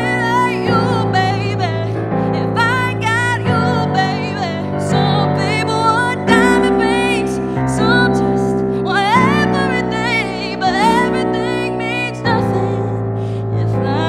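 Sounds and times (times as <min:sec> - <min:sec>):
piano chords: 0:00.0 - 0:14.0
woman singing: 0:00.0 - 0:14.0.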